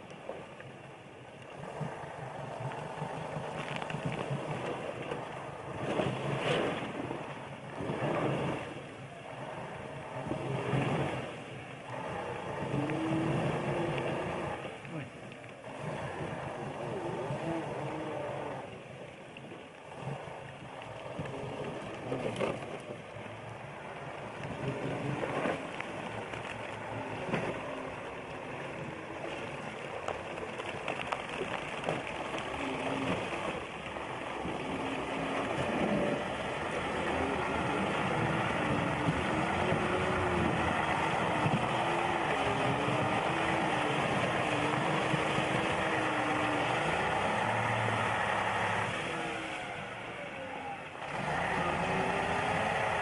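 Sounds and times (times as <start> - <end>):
truck churning through slush: 1.5 - 19.0, 19.7 - 53.0
heavy truck engine working hard: 34.3 - 50.2, 50.9 - 53.0.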